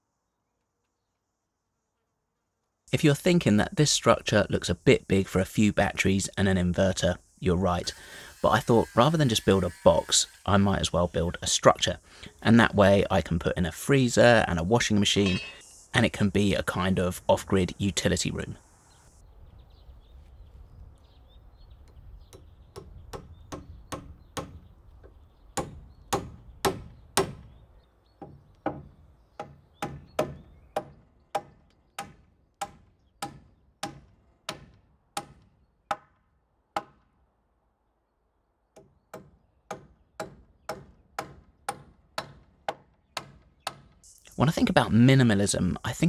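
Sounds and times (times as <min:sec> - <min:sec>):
hammer striking timber: 0:25.6 - 0:27.5, 0:28.2 - 0:36.2, 0:36.8 - 0:37.1, 0:38.7 - 0:44.0.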